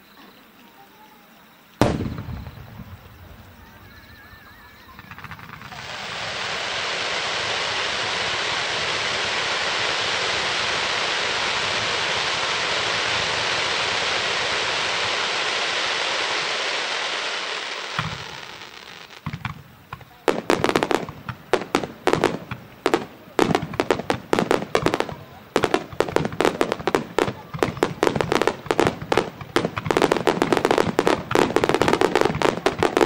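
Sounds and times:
firework fountains hissing: 0:01.7 - 0:33.0
firework shells bursting: 0:01.8 - 0:06.6, 0:17.6 - 0:33.0.

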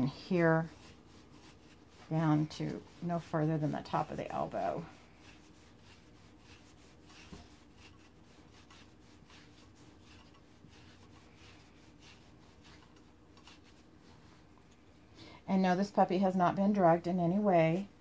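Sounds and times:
shedding tool rasping through fur: 0:00.0 - 0:14.4.

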